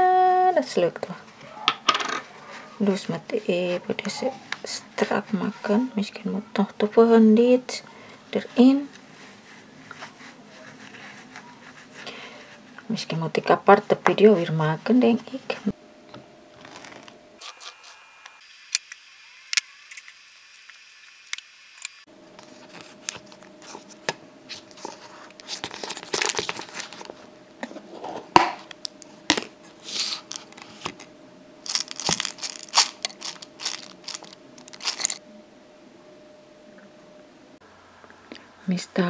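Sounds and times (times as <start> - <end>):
faint steady hum: 0.0 - 39.0
plastic packet crinkling: 16.6 - 17.8, 24.6 - 27.2, 29.9 - 35.2.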